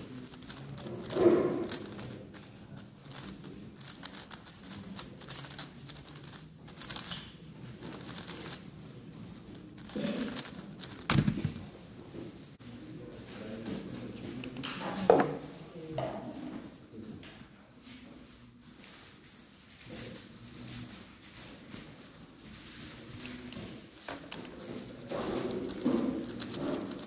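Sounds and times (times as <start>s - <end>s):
puzzle cube plastic clicks: 0.1s - 7.3s, 7.9s - 8.6s, 9.6s - 11.6s, 24.1s - 27.0s
puzzle knocked down on mat: 11.1s - 11.7s.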